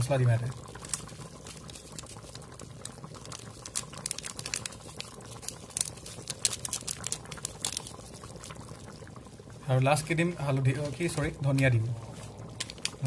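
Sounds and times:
curry bubbling and spitting: 0.0s - 13.0s.

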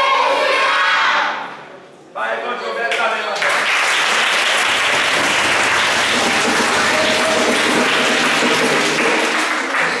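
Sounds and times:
children clapping: 2.9s - 10.0s.

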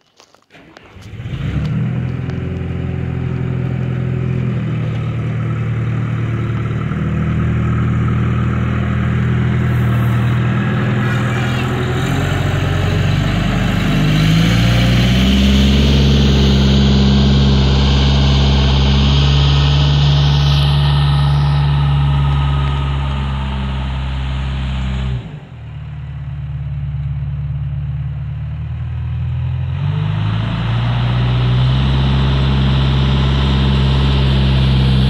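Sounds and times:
tyres on gravel: 0.0s - 15.0s
diesel engine running: 0.5s - 35.0s.

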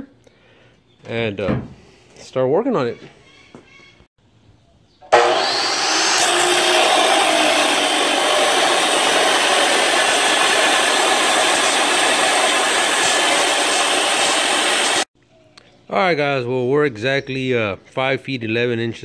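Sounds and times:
chop saw grinding through steel: 5.1s - 15.1s.

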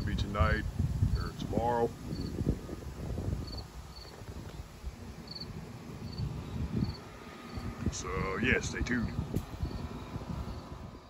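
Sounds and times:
low uneven rumble: 0.0s - 11.0s
cricket chirping: 2.1s - 2.4s, 3.4s - 4.2s, 5.2s - 7.8s, 9.6s - 10.8s.

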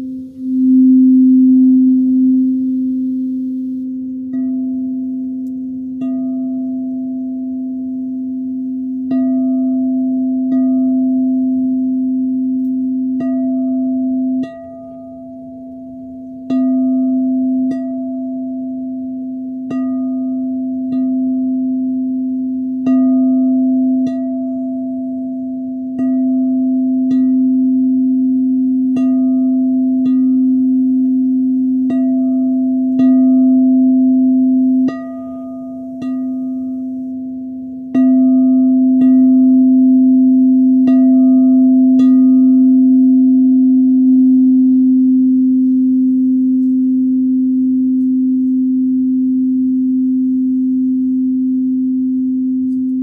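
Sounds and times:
singing bowl struck and ringing: 0.0s - 53.0s.

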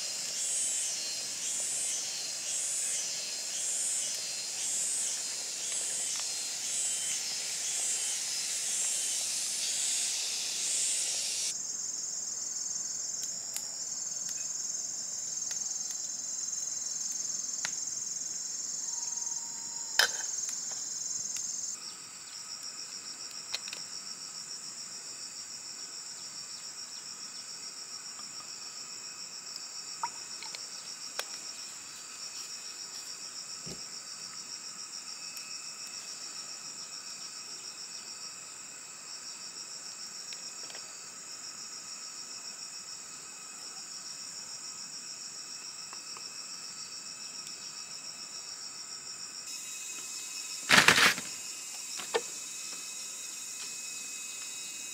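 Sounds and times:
cricket trills: 0.0s - 54.9s
insects hissing: 0.0s - 54.9s.

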